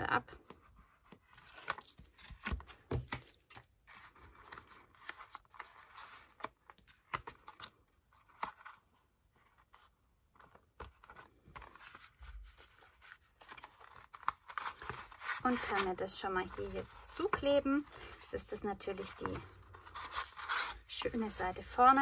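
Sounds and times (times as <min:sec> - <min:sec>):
cardstock rustling and crinkling: 0:00.3 - 0:22.0.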